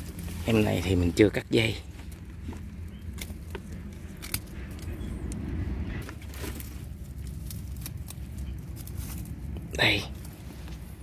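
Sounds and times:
steady low rumble: 0:00.0 - 0:11.0
pruning shears snipping: 0:03.1 - 0:05.4.

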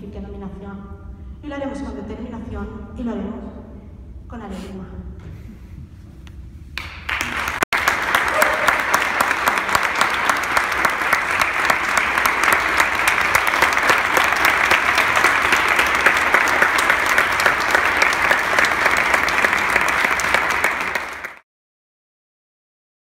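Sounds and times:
audience applauding: 0:06.8 - 0:21.4.

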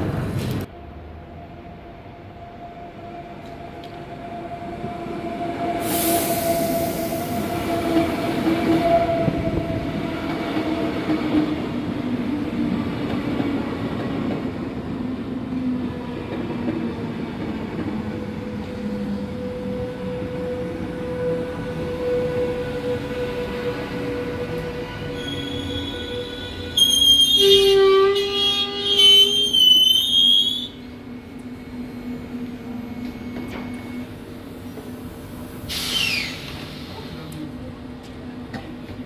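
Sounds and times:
electric train braking: 0:05.5 - 0:09.6, 0:21.9 - 0:34.3, 0:35.6 - 0:37.2
burst of hiss: 0:05.8 - 0:07.5, 0:35.6 - 0:37.2
steady high squeal: 0:23.4 - 0:27.6.

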